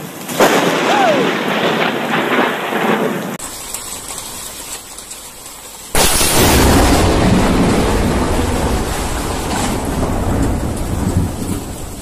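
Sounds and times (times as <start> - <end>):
lightning crack: 0.0 - 5.1, 5.8 - 12.0
steady rain: 0.0 - 12.0
loud rumbling thunder: 0.4 - 3.5, 6.0 - 12.0.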